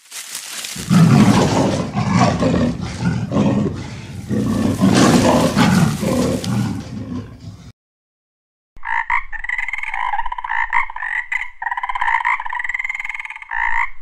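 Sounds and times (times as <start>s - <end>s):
big cat roaring and snarling: 0.8s - 7.7s.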